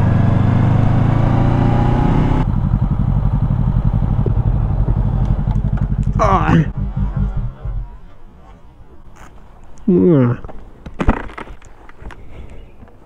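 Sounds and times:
motorcycle engine: 0:00.0 - 0:08.7
wind and road noise: 0:00.0 - 0:13.0.

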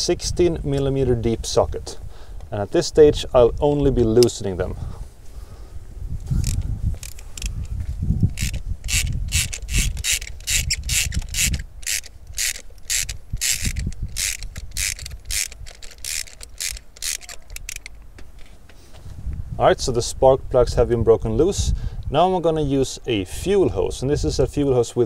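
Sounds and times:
socket ratchet clicking: 0:06.4 - 0:07.7, 0:08.3 - 0:18.0.

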